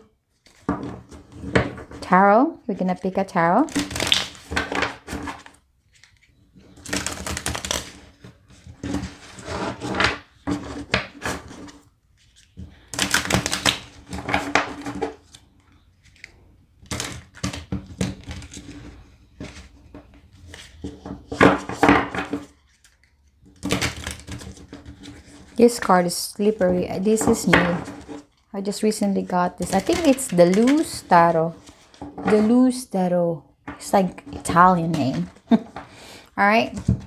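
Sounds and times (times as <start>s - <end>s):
cards being shuffled: 3.7s - 8.7s, 29.2s - 32.5s.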